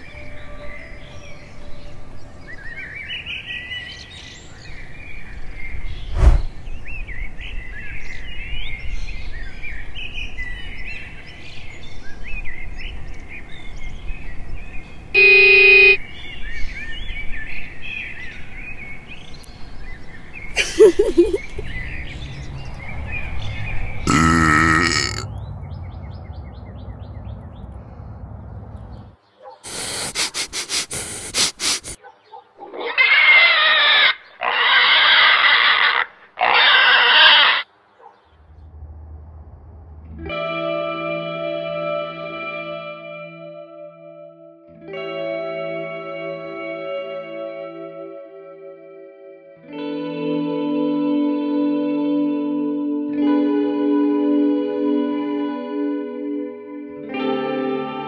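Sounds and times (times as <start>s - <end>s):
birds chirping: 0.0s - 32.9s, 33.9s - 38.7s.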